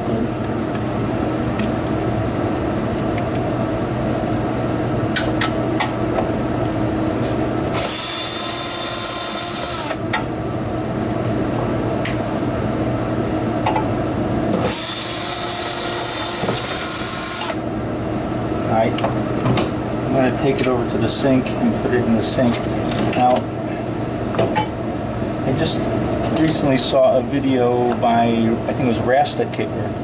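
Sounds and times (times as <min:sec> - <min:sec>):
steady background hum: 0:00.0 - 0:30.0
drill motor whine: 0:07.7 - 0:10.0, 0:14.6 - 0:17.7.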